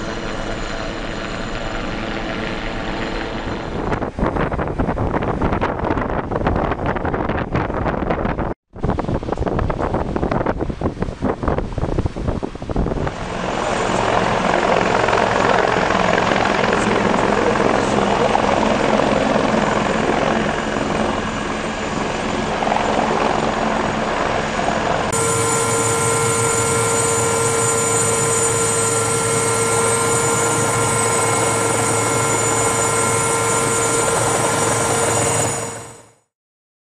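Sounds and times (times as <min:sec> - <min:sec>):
helicopter engine and rotor: 0:00.0 - 0:06.1, 0:12.9 - 0:36.3
steady whining tones: 0:13.1 - 0:36.2.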